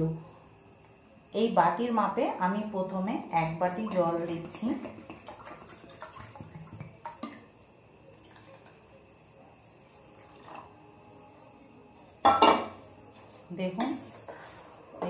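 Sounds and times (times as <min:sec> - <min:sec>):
water trickling into bowl: 0:03.6 - 0:11.4.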